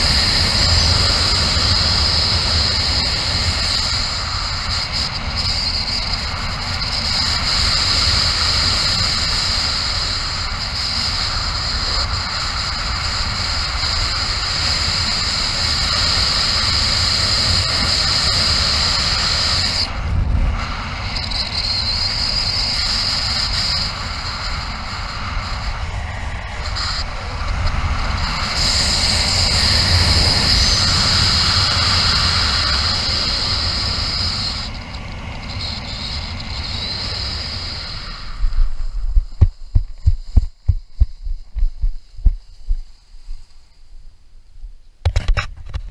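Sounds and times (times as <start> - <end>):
wind rushing on microphone: 0.0 - 43.6
high hiss: 0.0 - 45.0
low buffeting: 34.6 - 44.3.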